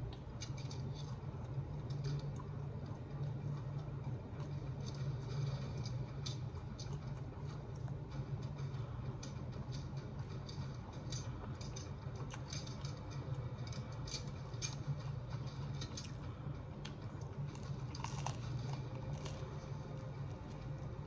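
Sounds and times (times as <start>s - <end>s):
low background hum: 0.0s - 21.0s
person chewing food: 0.0s - 21.0s.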